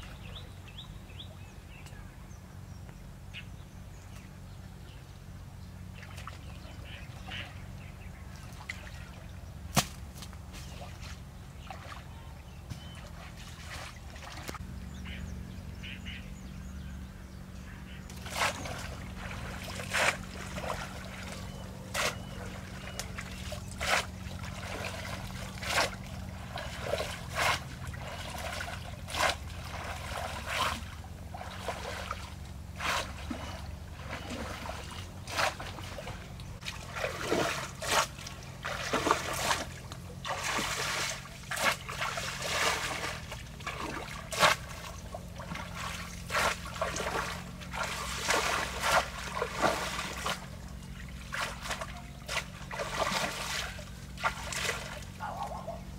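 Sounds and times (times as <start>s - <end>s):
steady low hum: 0.0s - 55.9s
water splashing strokes: 12.8s - 14.6s, 18.1s - 55.8s.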